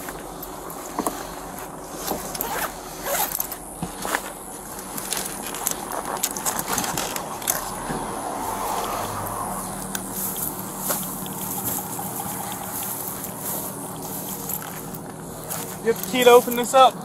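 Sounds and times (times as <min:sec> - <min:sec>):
rustling: 0:00.0 - 0:16.8
steady background noise: 0:00.0 - 0:17.0
clicks and knocks of objects handled: 0:02.0 - 0:08.1.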